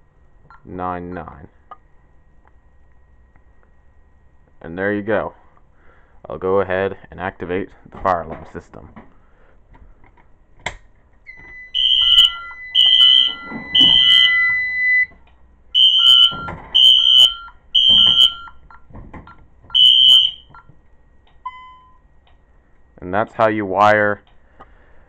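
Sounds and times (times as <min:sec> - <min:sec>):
steady lower beep: 0:11.3 - 0:15.1, 0:15.8 - 0:18.8, 0:19.8 - 0:20.7, 0:21.4 - 0:22.2
fire alarm high pulses: 0:11.3 - 0:18.9, 0:19.7 - 0:20.7.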